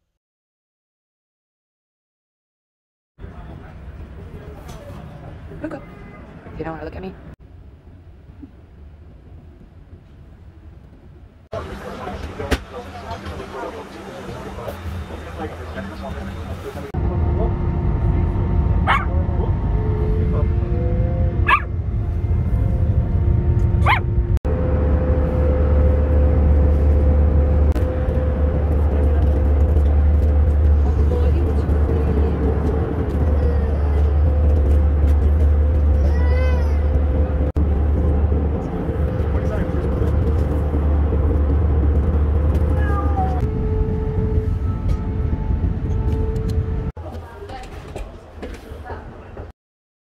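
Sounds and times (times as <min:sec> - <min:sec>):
airliner cabin drone: 0:07.2 - 0:47.0
small dog yipping: 0:21.5 - 0:21.7.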